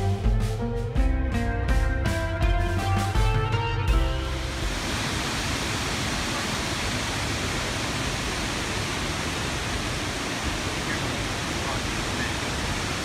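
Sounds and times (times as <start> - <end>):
waterfall roaring: 4.3 - 13.0.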